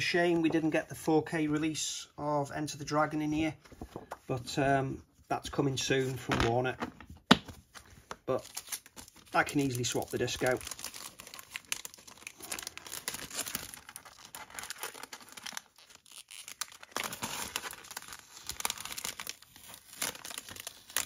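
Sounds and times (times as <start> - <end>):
packaging crinkling and rustling: 6.2 - 21.0.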